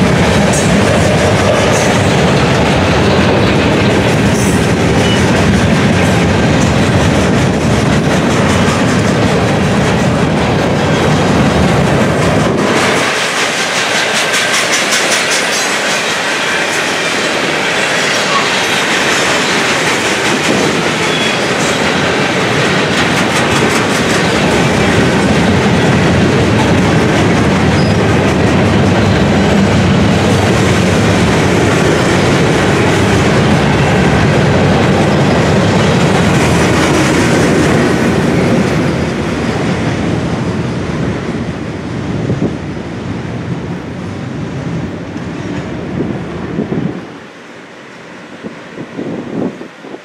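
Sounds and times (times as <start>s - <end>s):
train wheels clattering on rails: 0.0s - 47.1s.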